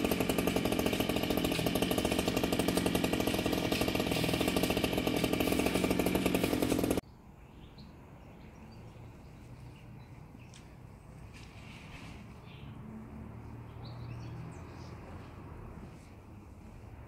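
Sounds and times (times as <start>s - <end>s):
chainsaw buzzing: 0.0s - 7.0s.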